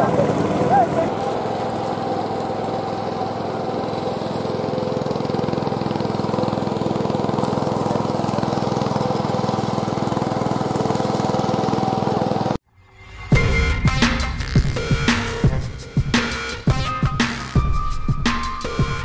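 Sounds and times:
tractor diesel engine running: 0.0s - 12.6s.

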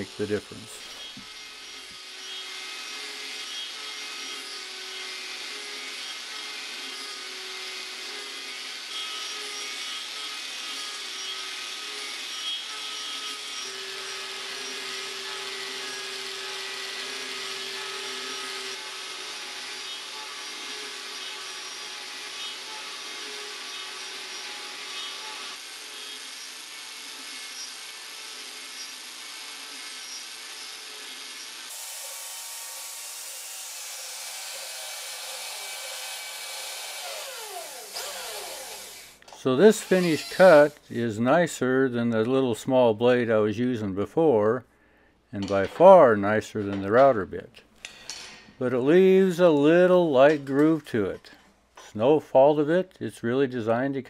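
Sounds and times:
angle grinder motor whining: 0.8s - 41.0s.

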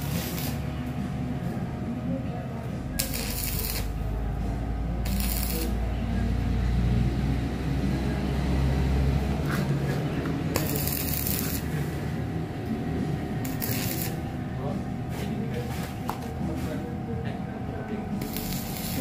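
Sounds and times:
welding arc crackling: 0.0s - 0.7s, 3.0s - 4.1s, 5.0s - 5.8s, 10.5s - 11.8s, 13.4s - 14.3s, 18.2s - 19.0s
steady low hum: 0.0s - 19.0s.

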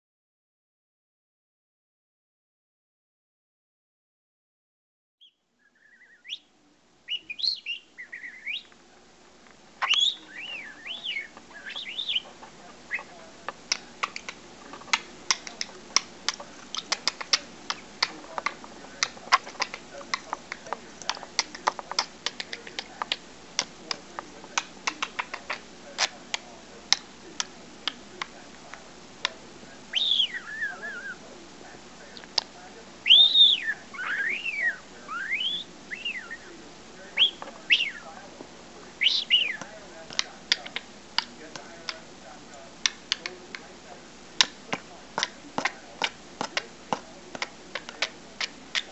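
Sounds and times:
budgerigar whistling and chirping: 5.2s - 6.5s, 7.1s - 8.7s, 9.8s - 13.2s, 29.9s - 31.2s, 33.0s - 38.1s, 39.0s - 39.6s.

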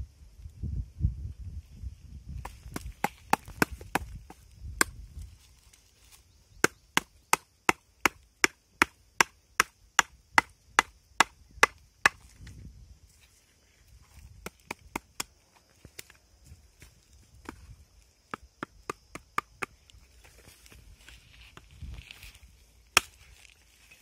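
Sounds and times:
machete chopping fruit: 2.4s - 5.0s, 6.6s - 12.2s, 14.4s - 15.4s.

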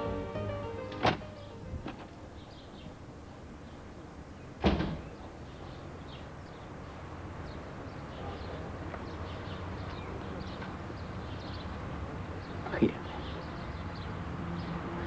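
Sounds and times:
door slamming: 0.8s - 2.1s, 4.6s - 5.2s.

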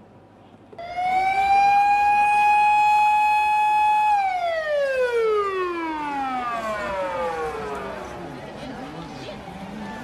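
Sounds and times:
emergency siren wailing: 0.8s - 8.2s.

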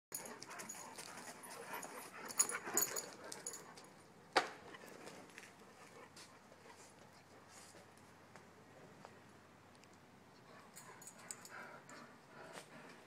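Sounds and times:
dog moving about: 0.2s - 4.0s
small clicks and scuffs: 0.2s - 13.0s.

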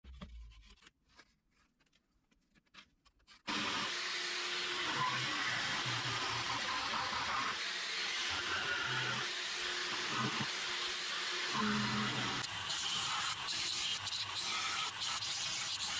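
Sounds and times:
electric jigsaw cutting wood: 3.5s - 15.9s.

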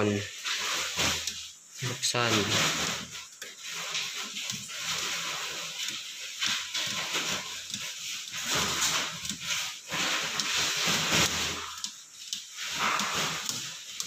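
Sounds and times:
loud rushing hiss: 0.0s - 7.4s, 12.6s - 14.0s.

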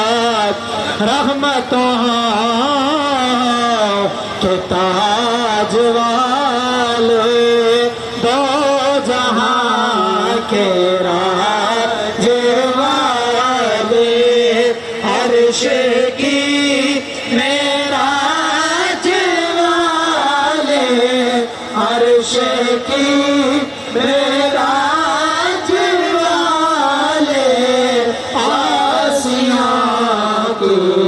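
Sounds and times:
man chanting devotional song: 0.0s - 31.0s.

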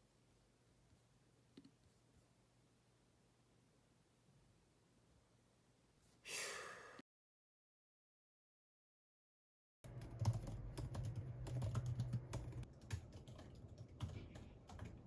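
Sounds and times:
laptop keyboard typing: 9.8s - 15.0s.

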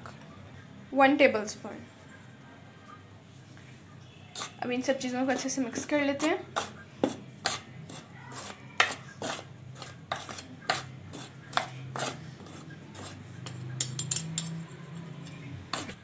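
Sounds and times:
metal cutlery scraping a ceramic dish: 4.3s - 4.6s, 7.4s - 16.0s.

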